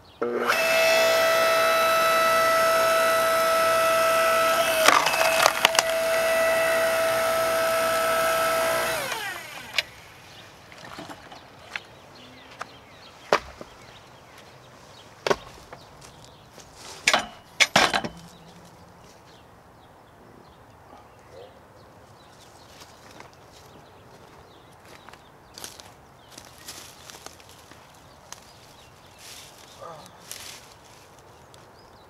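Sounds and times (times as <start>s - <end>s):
log splitter motor whine: 0.2s - 11.4s
wood splitting cracks: 2.1s - 9.9s.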